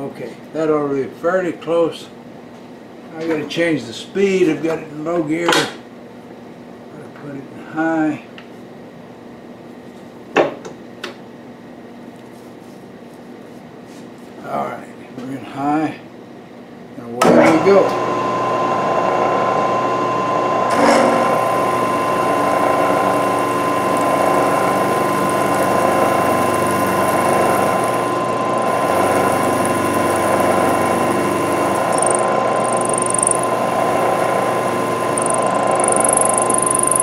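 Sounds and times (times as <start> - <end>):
milling machine cutting metal: 17.2 - 37.0
steady high tone: 21.5 - 37.0.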